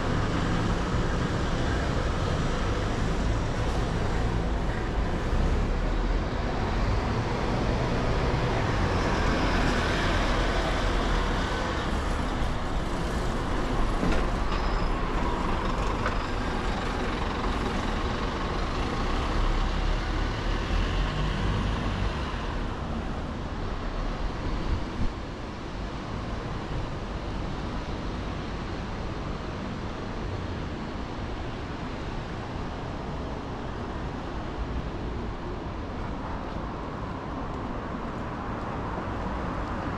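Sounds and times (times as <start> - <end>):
road traffic rumble: 0.0 - 39.9.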